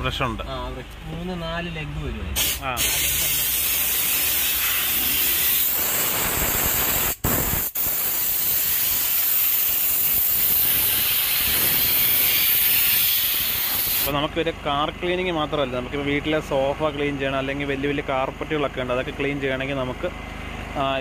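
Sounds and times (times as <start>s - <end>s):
steam gun hissing: 2.4s - 14.1s.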